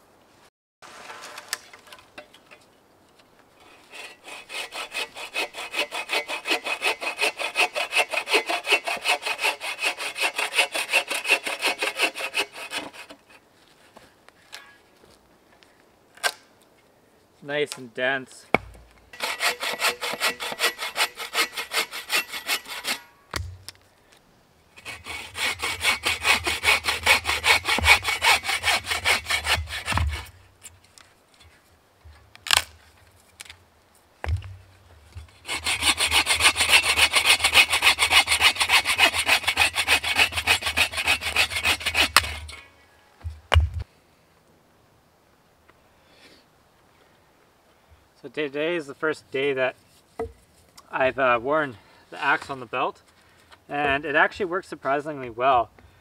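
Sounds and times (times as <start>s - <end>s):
bow saw cutting log: 3.8s - 13.3s, 19.2s - 23.5s, 24.8s - 30.4s, 35.2s - 42.6s
wood knocks: 34.2s - 34.6s.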